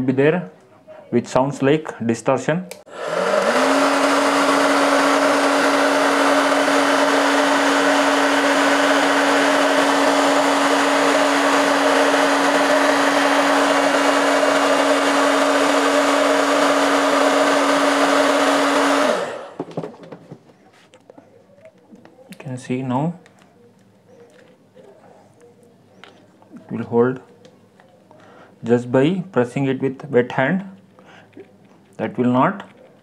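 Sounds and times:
motor winding down: 2.9s - 19.6s
hair dryer running: 2.9s - 19.9s.

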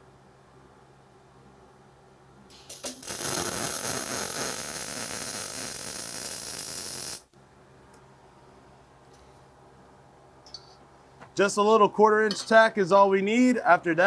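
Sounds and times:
welding arc sputters: 2.5s - 7.3s
welding arc buzzing: 2.5s - 7.4s.

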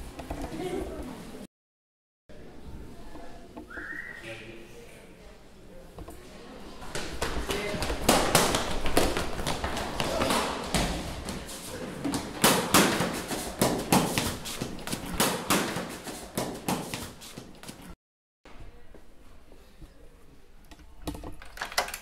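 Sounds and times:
people running on hard floor: 6.9s - 17.8s.

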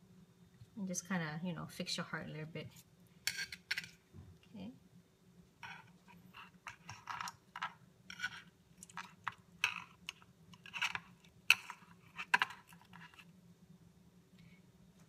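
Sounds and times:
faint low hum: 0.0s - 15.0s
knife scraping metal tray: 5.6s - 10.0s.

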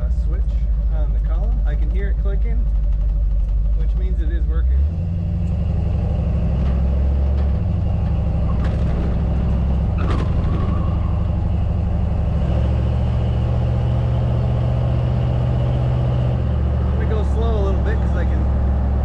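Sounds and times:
low engine drone: 0.0s - 19.0s
road and wind noise: 0.0s - 19.0s.

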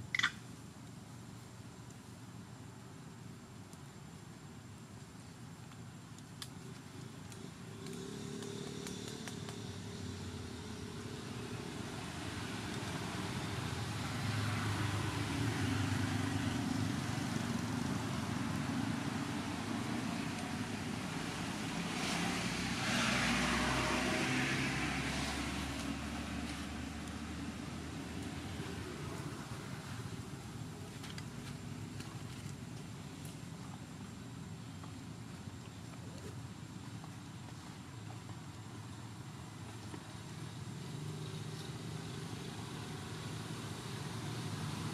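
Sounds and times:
passing traffic: 6.4s - 44.9s
vehicle engine droning: 6.9s - 32.6s.

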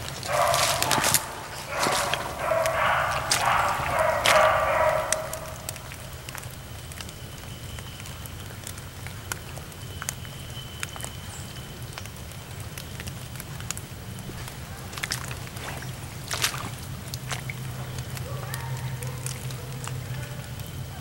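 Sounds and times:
light ticks and crackles: 0.0s - 21.0s
low steady hum: 0.0s - 21.0s
dog baying: 0.2s - 6.1s, 17.6s - 21.0s.

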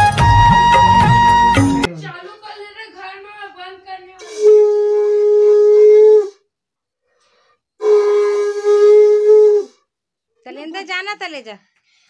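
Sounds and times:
conch shell blasts: 7.8s - 9.5s.

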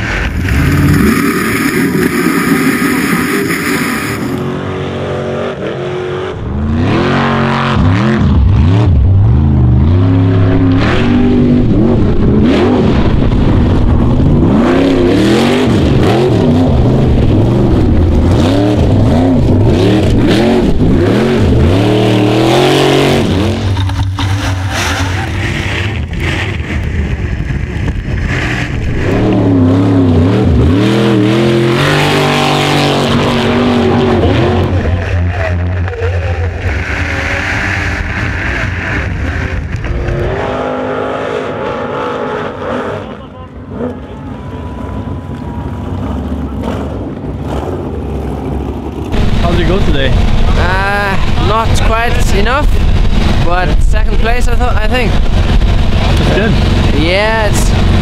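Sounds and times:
buggy engine revving: 0.0s - 58.0s.

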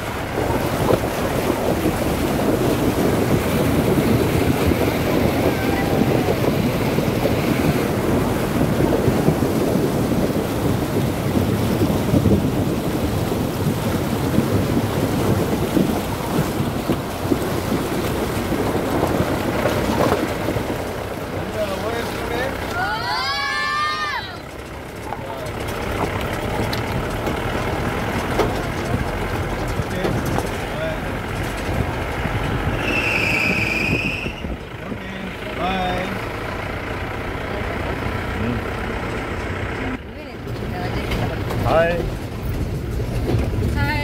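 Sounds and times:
wind on microphone: 0.0s - 22.2s, 25.8s - 35.0s
car engine: 0.0s - 44.0s
water churning and splashing: 0.0s - 44.0s.

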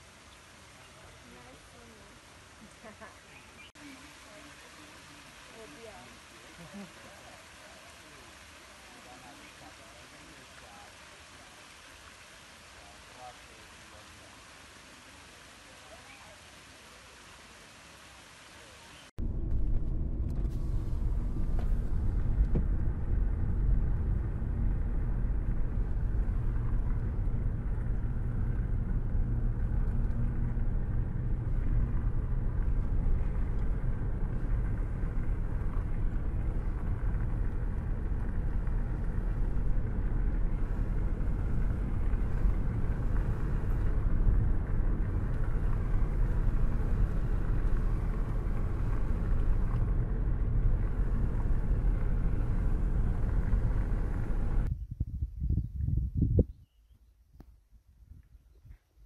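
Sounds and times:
vehicle rumble: 0.0s - 54.8s.

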